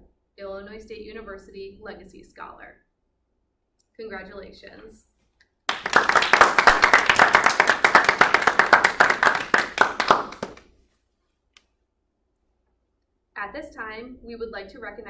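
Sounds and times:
hand clapping: 5.7s - 10.7s.

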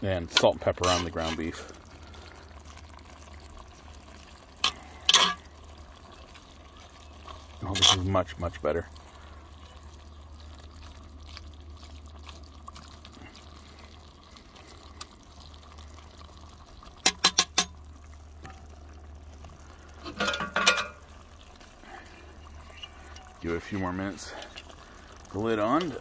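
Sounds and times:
meat and vegetables sizzling: 0.0s - 26.0s
metal spatula stirring: 0.3s - 1.6s, 4.6s - 5.4s, 7.6s - 8.2s.

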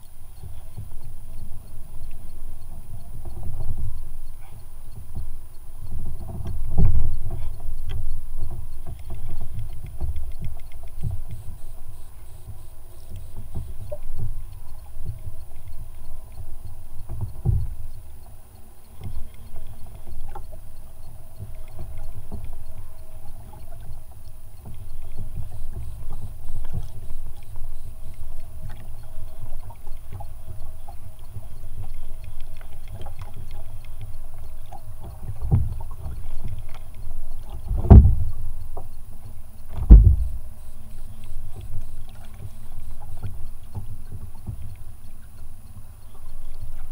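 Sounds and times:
faint clicks: 0.0s - 46.9s
water lapping against kayak hull: 0.0s - 46.9s
wind buffeting microphone: 39.8s - 40.5s.

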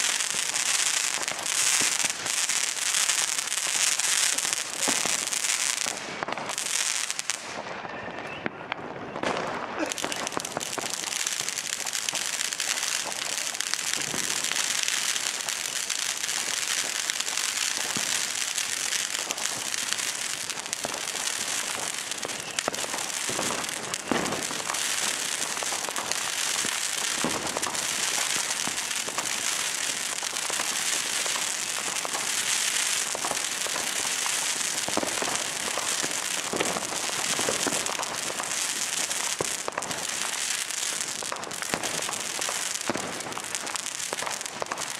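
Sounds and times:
firecrackers crackling: 0.0s - 44.9s
fireworks sharp bangs: 0.0s - 44.9s.

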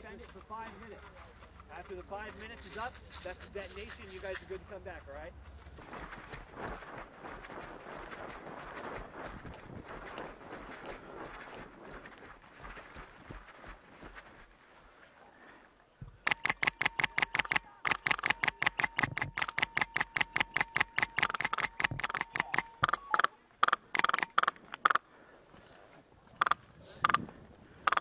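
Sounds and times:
airsoft rifle firing full auto: 16.3s - 25.0s.

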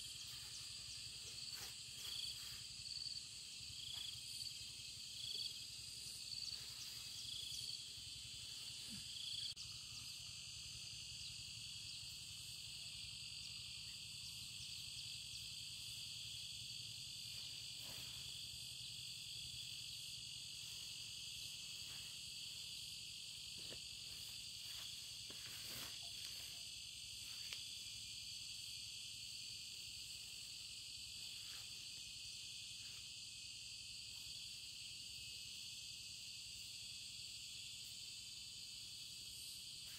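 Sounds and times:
insect chorus buzzing: 0.0s - 39.9s
faint rustles: 23.5s - 27.6s.

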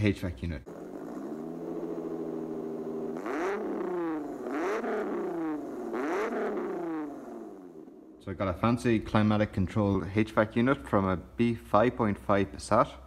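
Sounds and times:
car engine idling and revving: 0.7s - 8.2s.

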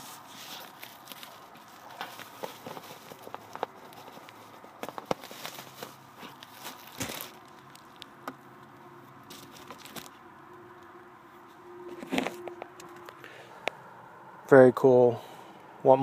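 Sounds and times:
packaging rustling and crinkling: 0.0s - 10.2s, 11.9s - 13.2s.

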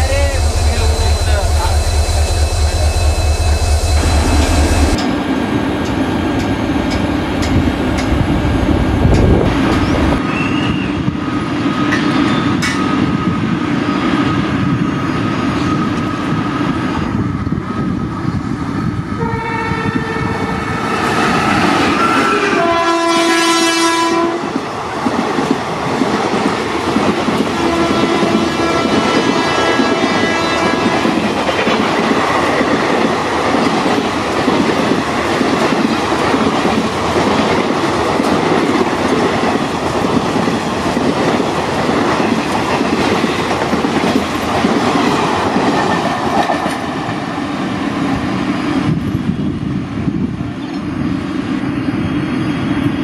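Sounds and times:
locomotive air horn blasts: 19.2s - 20.5s, 22.1s - 24.4s, 27.6s - 31.1s.

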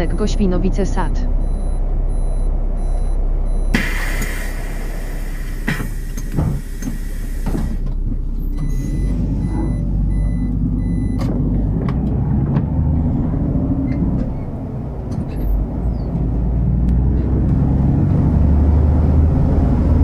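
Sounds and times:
high warning beeps: 0.0s - 4.4s, 8.6s - 11.2s
bus engine running: 0.0s - 20.0s
compressed air hiss: 3.7s - 7.8s.

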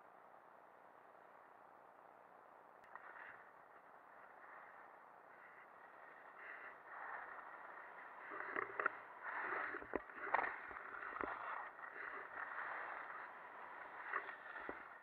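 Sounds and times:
skis scraping over snow: 5.4s - 15.0s.

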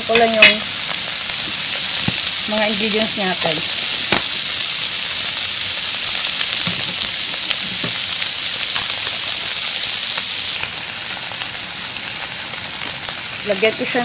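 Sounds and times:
meat sizzling with pops: 0.0s - 14.0s.

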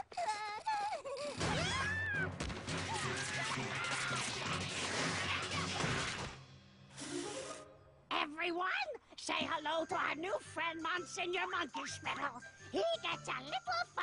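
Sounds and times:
cartoon smashing and crashing: 1.4s - 6.4s
music: 1.4s - 14.0s.

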